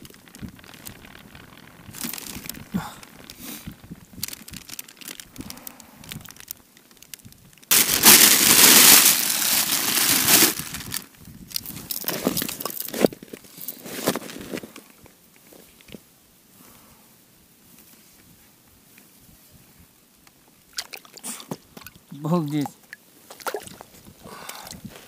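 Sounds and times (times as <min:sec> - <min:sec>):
plastic bag crinkling loudly: 0:00.0 - 0:14.6
plastic bag rustling: 0:00.0 - 0:14.8.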